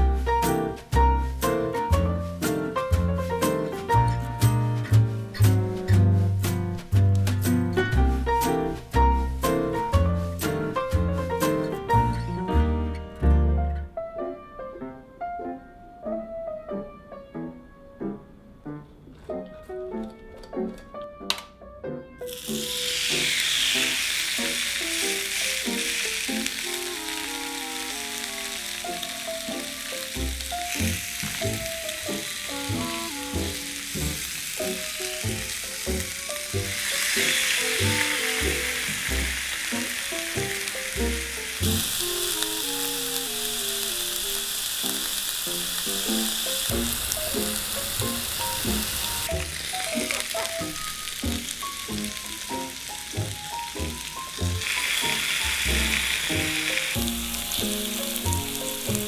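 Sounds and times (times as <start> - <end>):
melodic background music: 0.0 - 23.0, 46.3 - 59.0
fish sizzling on hot plates: 22.3 - 59.0.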